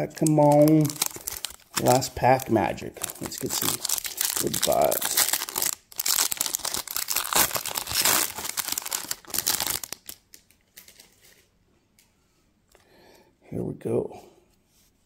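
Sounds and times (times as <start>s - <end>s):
foil wrapper tearing and crinkling: 0.1s - 11.2s.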